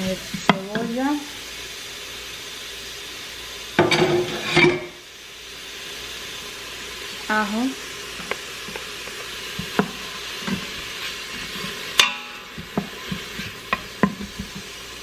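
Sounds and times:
onion and garlic sizzling: 0.0s - 15.0s
wooden spoon knocking metal pot: 12.0s - 14.7s.

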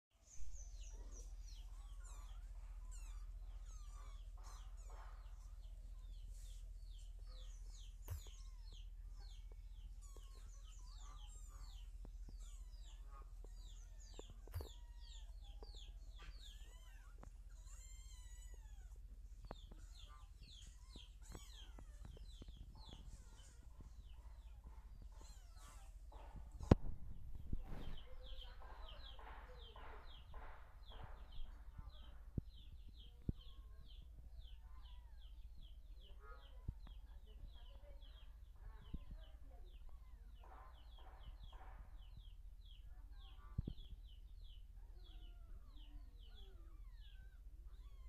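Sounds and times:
birds chirping: 0.1s - 48.0s.

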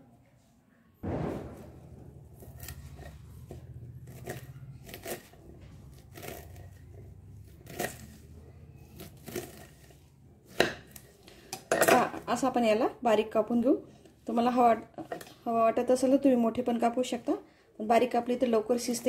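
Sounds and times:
knife slicing leaves: 2.4s - 6.8s, 7.5s - 8.2s, 8.9s - 11.1s.

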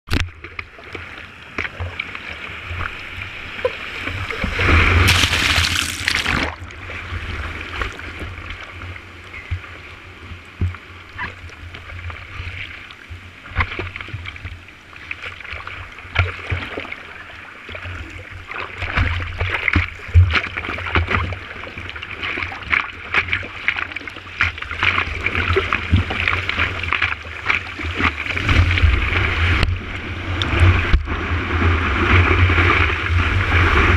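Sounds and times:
water splashing around surfboard: 0.1s - 8.8s, 10.6s - 33.9s
wave rushing over board: 4.4s - 6.7s.

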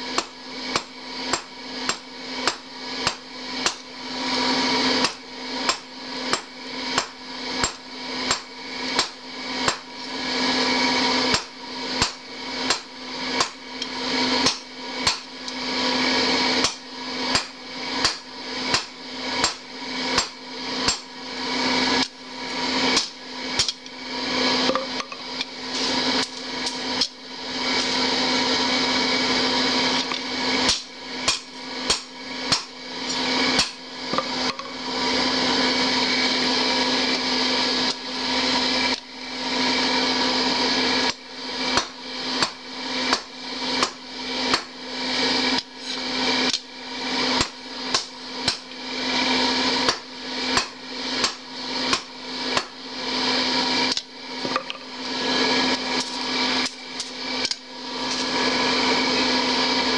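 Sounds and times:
hammer striking blade on anvil: 0.1s - 3.9s, 5.0s - 9.8s, 11.3s - 13.6s, 14.4s - 15.3s, 16.6s - 19.6s, 20.2s - 21.1s, 30.0s - 34.7s, 41.8s - 44.7s, 49.8s - 52.8s.

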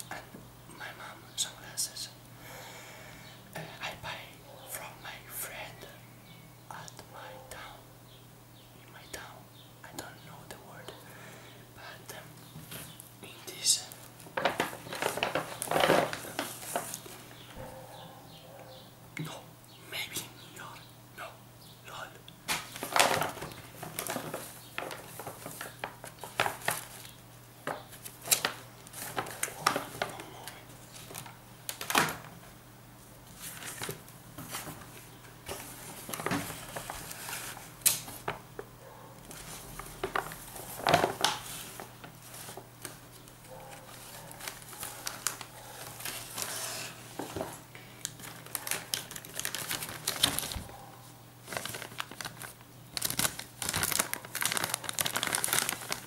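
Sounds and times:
paper and plastic bags crinkling: 13.8s - 17.5s, 22.5s - 32.3s, 33.3s - 38.4s, 39.3s - 50.7s, 51.4s - 56.0s
sharp crackles and taps: 22.5s - 32.2s.

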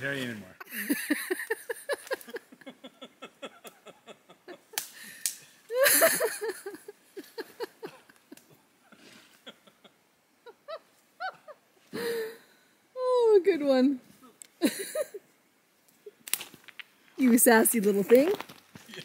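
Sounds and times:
branches crackling underfoot: 15.8s - 19.0s.

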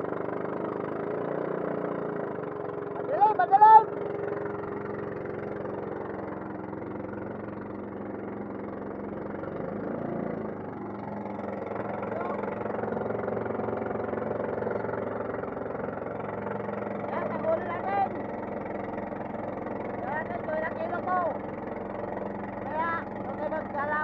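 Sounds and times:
boat engine running: 0.0s - 24.0s.

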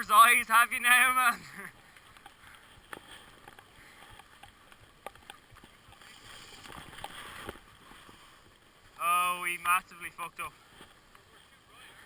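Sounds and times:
skis sliding over snow: 5.6s - 8.5s.

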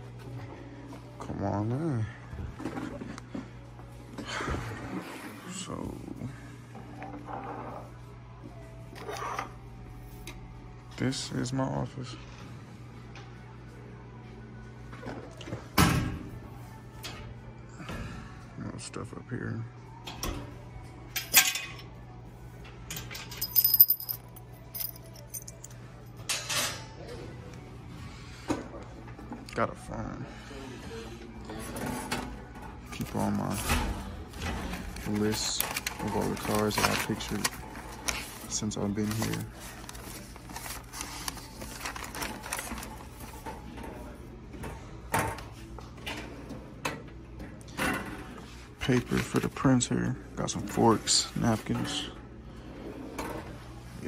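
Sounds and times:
metallic jingling and clinking: 23.0s - 26.2s
paper rustling: 34.7s - 43.4s.

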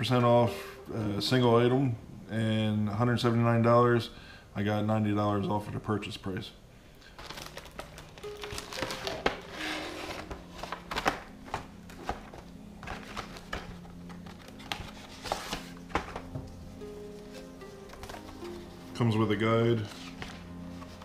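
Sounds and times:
background music: 0.0s - 3.8s, 7.3s - 21.0s
plastic packaging crinkling: 7.0s - 18.8s.

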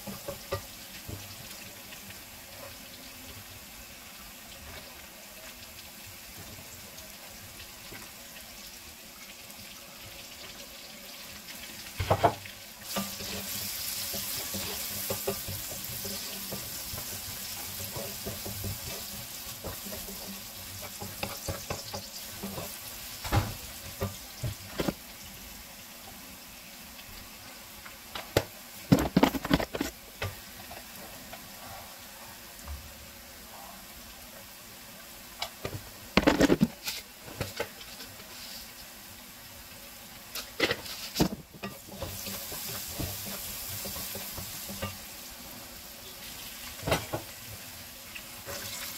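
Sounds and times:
vegetables sizzling in a pan: 0.0s - 48.9s
wooden spatula scraping a pan: 12.1s - 25.0s, 28.9s - 32.0s, 40.3s - 45.1s.

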